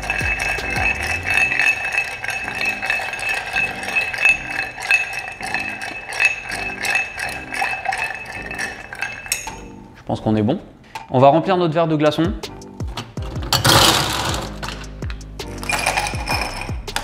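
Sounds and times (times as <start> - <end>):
ice cubes clinking in glass: 0.0 - 9.7, 13.5 - 14.8, 15.6 - 16.8.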